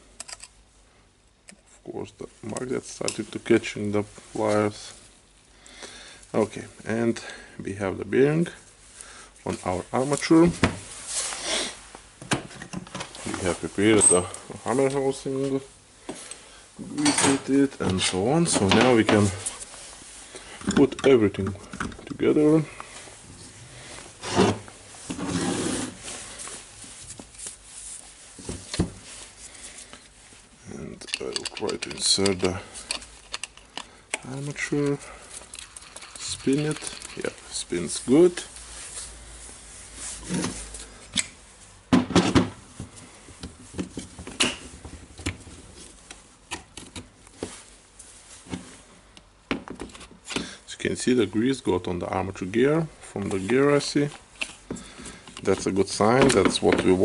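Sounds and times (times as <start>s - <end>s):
tool parts handled on bench: 31.0s - 37.4s.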